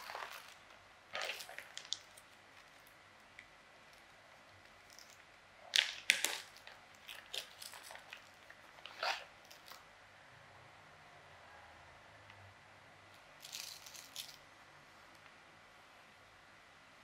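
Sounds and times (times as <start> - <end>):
small hard objects clicking and knocking: 1.2 - 8.6, 13.4 - 14.4.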